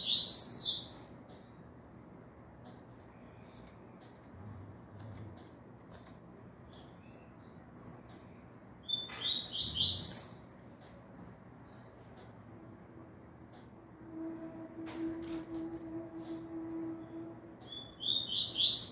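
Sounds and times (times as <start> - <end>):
songbird chirping: 5.9 - 12.3, 15.5 - 18.9.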